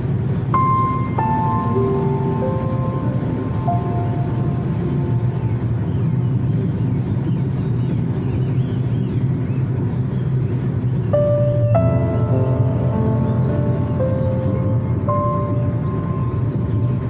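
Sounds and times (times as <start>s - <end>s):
car driving inside cabin: 0.0s - 13.9s
held music note: 0.5s - 6.6s, 11.2s - 17.0s.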